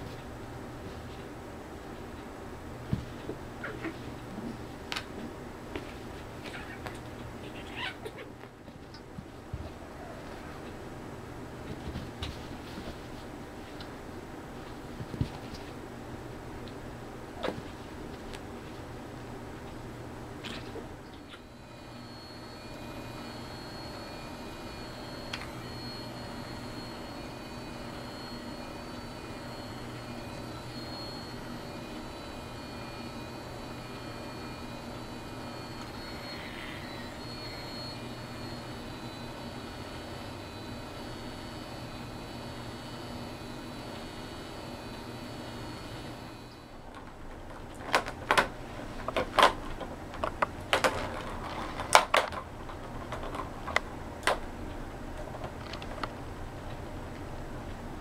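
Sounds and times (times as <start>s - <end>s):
small electric motor whirring: 21.4s - 46.7s
plastic ball clattering around track: 49.1s - 53.8s.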